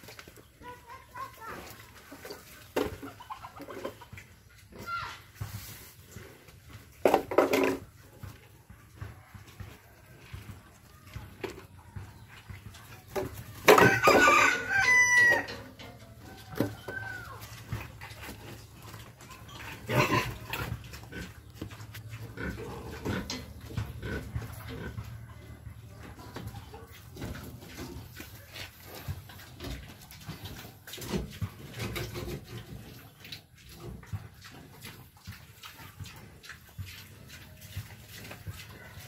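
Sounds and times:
pig grunting: 19.5s - 21.5s.

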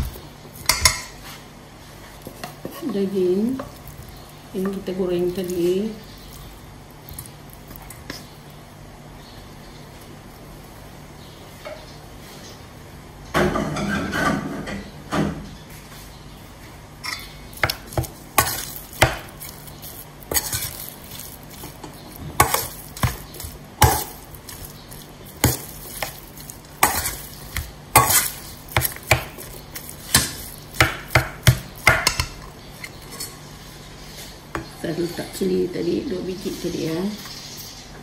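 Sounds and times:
metal spoon scraping steel bowl: 19.9s - 21.7s, 26.8s - 30.5s.

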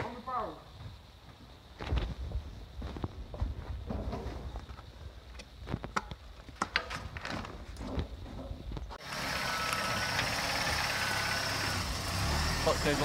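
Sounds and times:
car engine idling: 9.0s - 13.0s.

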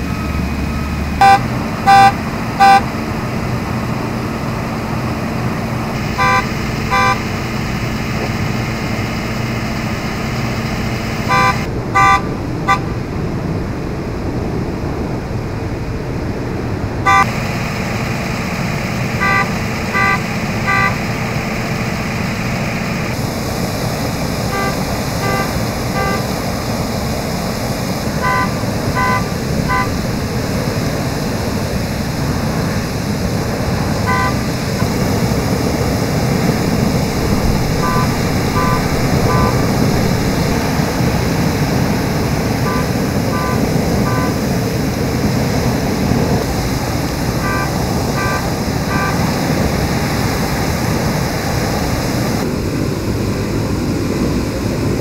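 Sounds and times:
short beeps: 1.2s - 2.8s, 6.2s - 7.2s, 11.2s - 12.8s, 17.1s - 17.3s, 19.2s - 21.0s, 24.5s - 26.2s, 28.2s - 30.0s, 34.1s - 34.4s, 37.8s - 40.5s, 42.6s - 44.4s, 47.4s - 49.2s
water hissing from hydrant: 17.3s - 54.9s.

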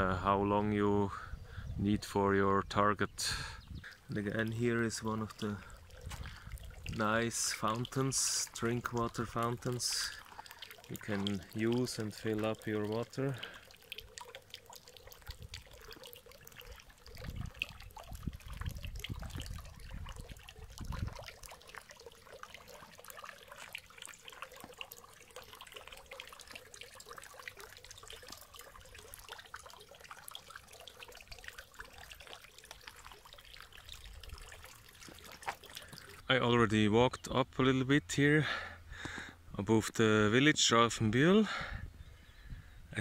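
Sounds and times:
water fountain splashing: 3.4s - 36.3s.

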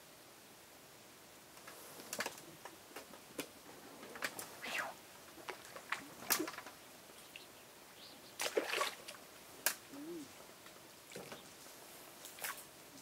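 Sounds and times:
water splashes: 8.4s - 9.2s.

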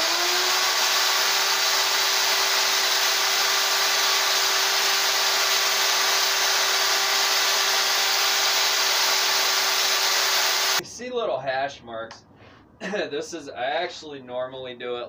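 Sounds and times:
electric chainsaw running: 0.0s - 10.8s.

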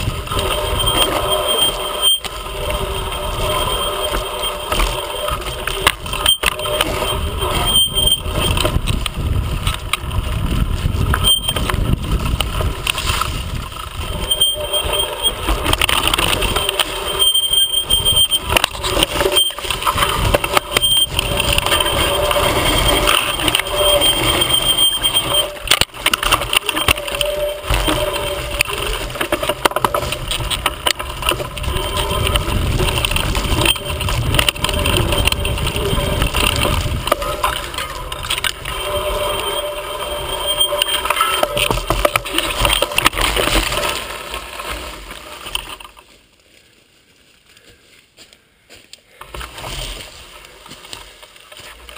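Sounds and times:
wind rumble on microphone: 0.0s - 43.2s
thin high whine: 0.0s - 46.1s
mountain bike rattling and knocking: 0.0s - 46.3s, 49.1s - 51.9s
tyres crunching over dry leaves: 17.9s - 51.9s.

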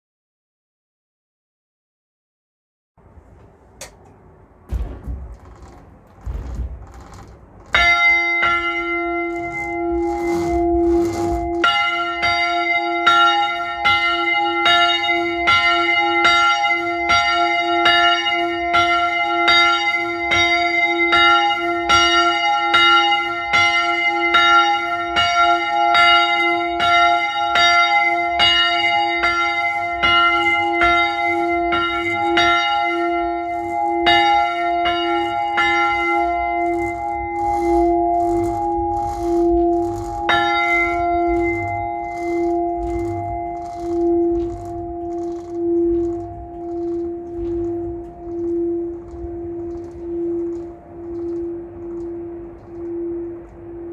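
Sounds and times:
church bell ringing: 6.8s - 53.9s.

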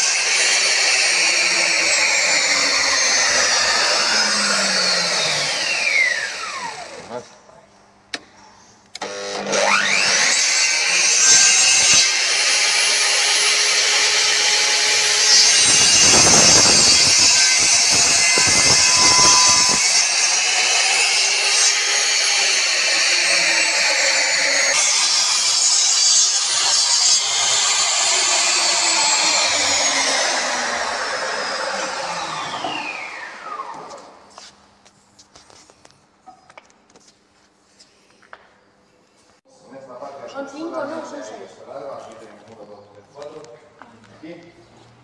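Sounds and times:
miter saw motor whine: 0.0s - 7.1s, 13.8s - 21.0s, 27.2s - 34.0s
saw blade cutting wood: 0.0s - 7.2s, 9.0s - 34.2s.

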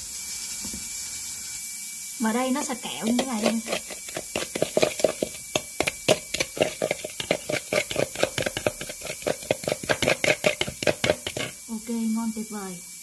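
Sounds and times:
metal spoon scraping a bowl: 2.8s - 11.7s.

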